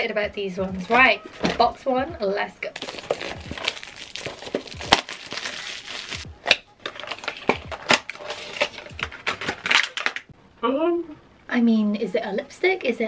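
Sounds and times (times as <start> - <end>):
plastic wrapping crinkling and tearing: 2.8 - 10.3.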